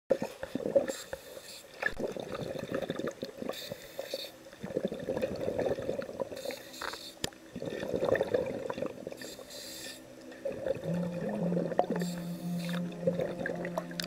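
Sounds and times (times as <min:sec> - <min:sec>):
scuba regulator bubbles gurgling: 0:00.1 - 0:14.0
low musical note: 0:10.8 - 0:14.0.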